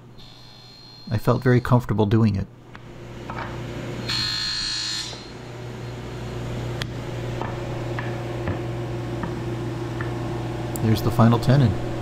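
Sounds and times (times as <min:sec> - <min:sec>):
table saw motor running: 0:03.6 - 0:08.1
saw blade cutting wood: 0:04.1 - 0:05.4.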